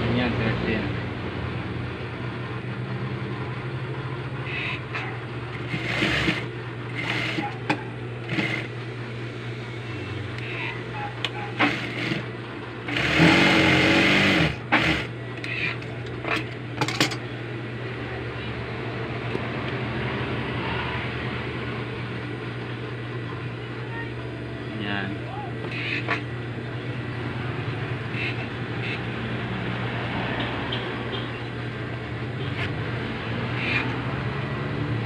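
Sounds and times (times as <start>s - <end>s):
sewing machine motor humming: 5.4s - 16.6s
sewing machine stitching: 5.5s - 8.7s, 11.4s - 12.3s, 12.9s - 16.5s.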